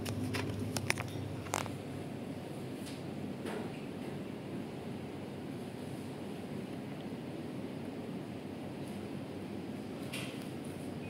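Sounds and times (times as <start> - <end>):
air conditioner running: 0.0 - 11.0.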